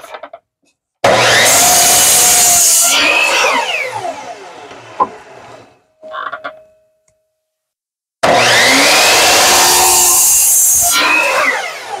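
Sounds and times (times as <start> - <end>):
miter saw cutting wood: 1.0 - 5.8, 8.2 - 12.0
saw motor spinning down whine: 1.0 - 5.8, 8.2 - 12.0.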